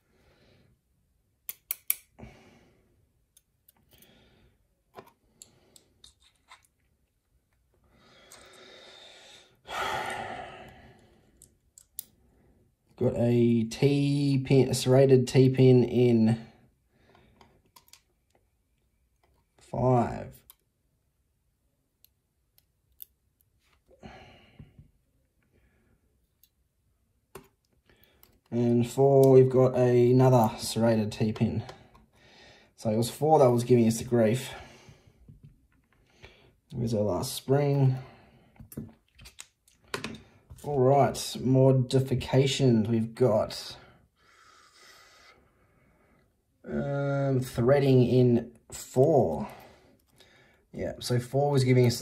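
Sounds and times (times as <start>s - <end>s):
tweezers clicking in lock: 1.5s - 2.1s.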